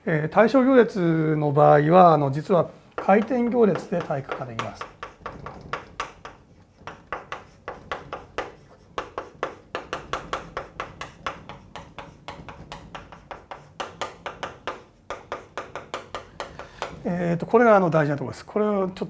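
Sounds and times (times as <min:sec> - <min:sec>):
chalk tapping and scratching: 0:02.9 - 0:18.1.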